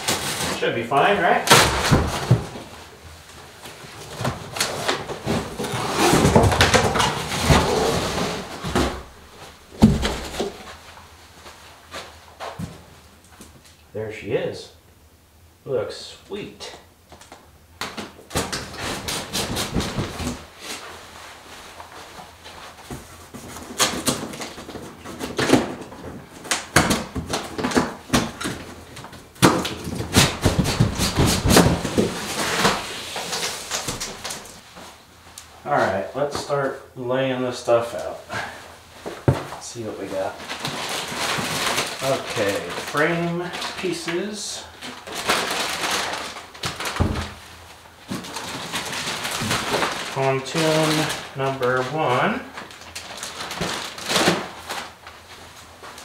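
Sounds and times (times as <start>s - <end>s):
cardboard rustling and knocking: 1.5s - 2.9s, 3.7s - 10.9s, 18.0s - 20.8s, 21.8s - 34.6s, 39.0s - 39.6s, 45.0s - 51.2s
cardboard scraping on cardboard: 4.0s - 9.1s.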